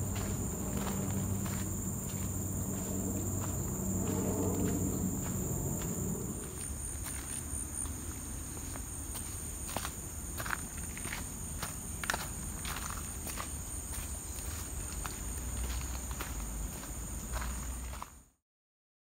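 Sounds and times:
low hum: 0:00.0 - 0:08.4
high-pitched insect drone: 0:00.0 - 0:18.1
footsteps crunching on trail: 0:00.0 - 0:18.3.

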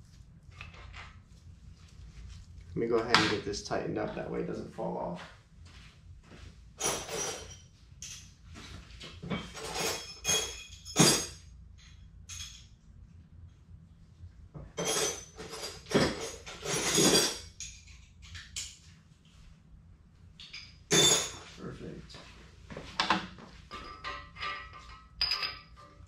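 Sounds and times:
metal tool parts clinking: 0:09.3 - 0:12.7, 0:14.8 - 0:18.8.

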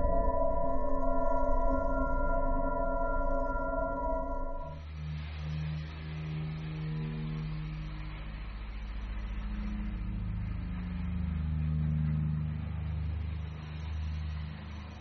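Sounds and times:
electronic drone of held tones: 0:00.0 - 0:07.8.

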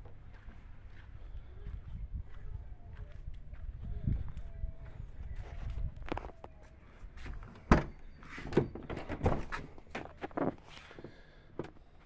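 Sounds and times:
truck door clunk: 0:07.6 - 0:09.6.

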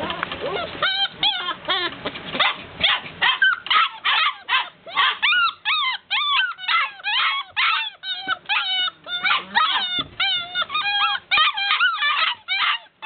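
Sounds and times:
puppies whining and yipping: 0:00.0 - 0:13.0.

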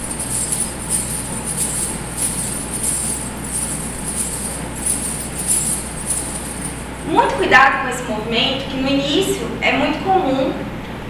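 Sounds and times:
metal coins jingling: 0:00.0 - 0:07.1.

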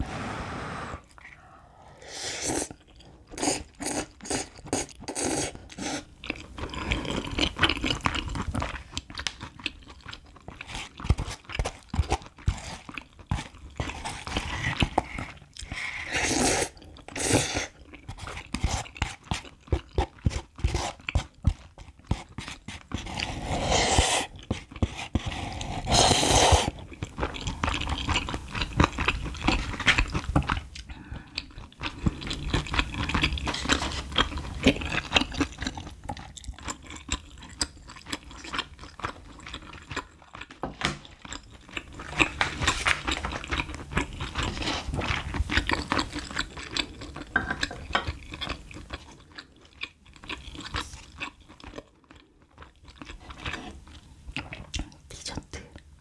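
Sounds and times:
loud slurp: 0:00.0 - 0:01.4, 0:02.0 - 0:02.8, 0:23.1 - 0:24.3, 0:25.2 - 0:26.8
chewing and wet mouth sounds: 0:02.4 - 0:56.0.

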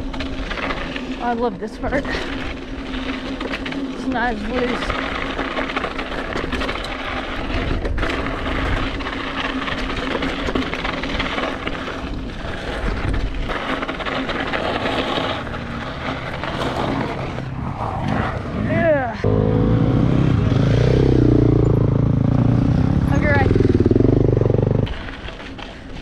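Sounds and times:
bike clicks and rattles: 0:00.0 - 0:19.0, 0:21.0 - 0:26.0
tyre and wind noise: 0:00.0 - 0:26.0.

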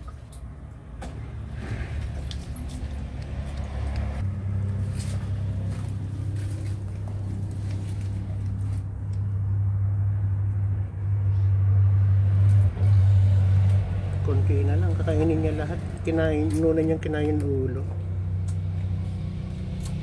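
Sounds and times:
low motor rumble: 0:00.0 - 0:20.0.

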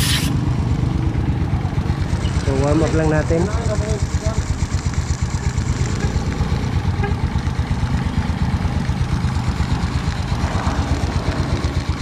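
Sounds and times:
motorcycle engine idling: 0:00.4 - 0:12.0.

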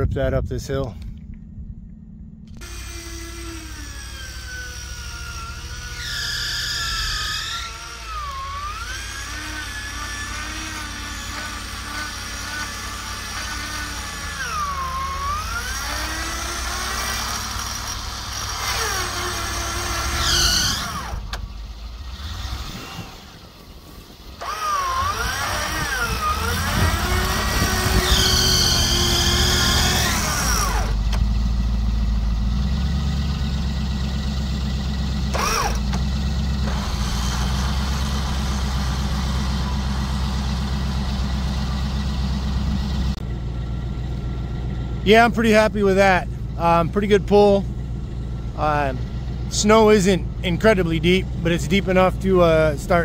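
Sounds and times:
engine running: 0:00.0 - 0:53.0
electric winch whining: 0:02.5 - 0:44.8
alternator belt squeals: 0:02.6 - 0:31.2, 0:32.7 - 0:43.3.

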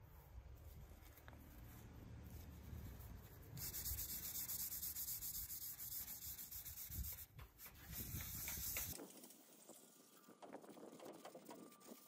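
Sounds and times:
sandpaper rubbing on metal: 0:02.3 - 0:09.0.

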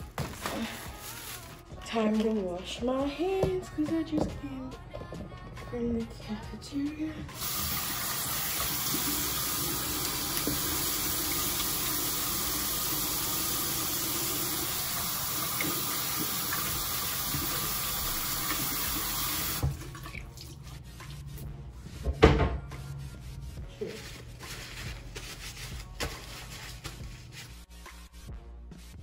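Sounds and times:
faucet running: 0:07.4 - 0:20.6
hands washing under water: 0:07.4 - 0:21.3.

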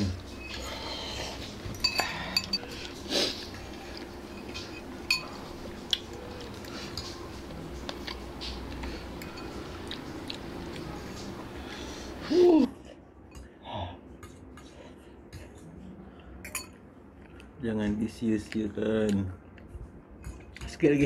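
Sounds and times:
cutlery clinking on ceramic bowls: 0:01.6 - 0:02.8, 0:03.8 - 0:06.0, 0:06.8 - 0:07.2, 0:09.2 - 0:10.4, 0:16.4 - 0:16.8.

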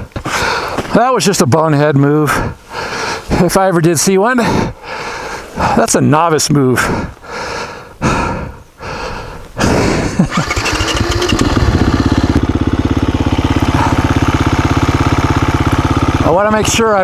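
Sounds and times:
dirt bike engine starting and idling: 0:09.7 - 0:17.0.

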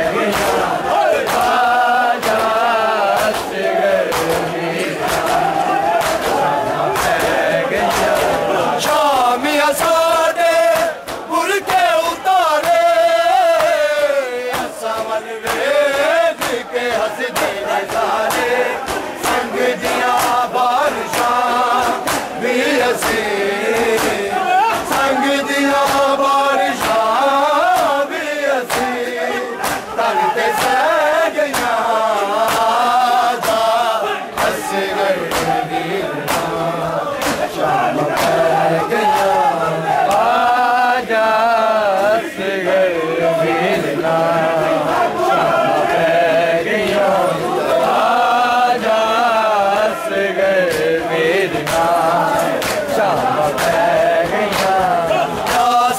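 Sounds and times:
hands slapping chests: 0:00.0 - 0:40.6, 0:50.6 - 0:55.9
men chanting in unison: 0:00.0 - 0:55.9.

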